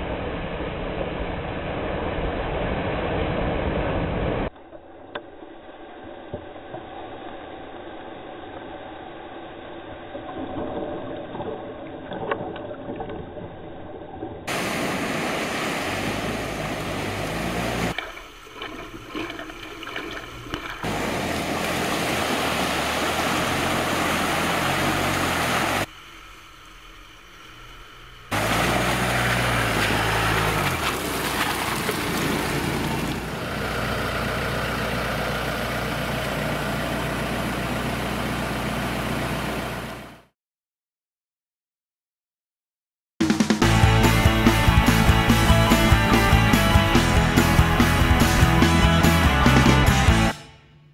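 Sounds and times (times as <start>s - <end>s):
water and mud splashing: 0.0s - 40.1s
off-road vehicle engines running: 14.5s - 18.0s, 20.1s - 25.9s, 28.3s - 40.2s, 43.6s - 50.9s.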